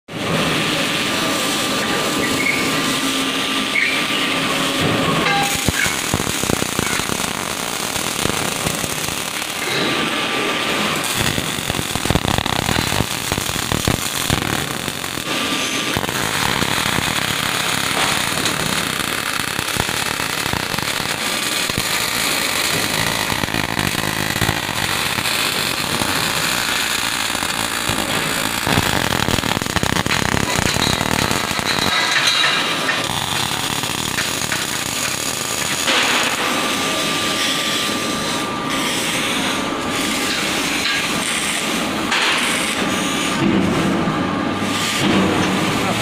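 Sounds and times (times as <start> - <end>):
welding arc crackling: 0.4 - 43.4, 44.5 - 46.0.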